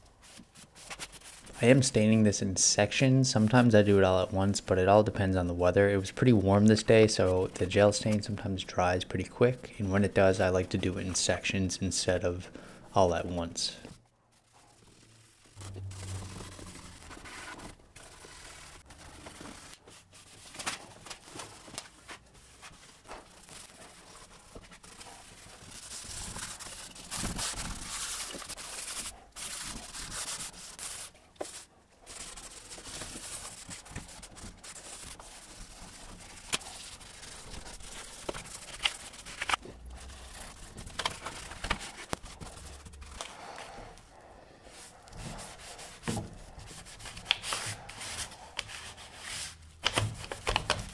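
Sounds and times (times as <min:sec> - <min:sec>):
cloth rag wiping wood: 0:44.7 - 0:49.6.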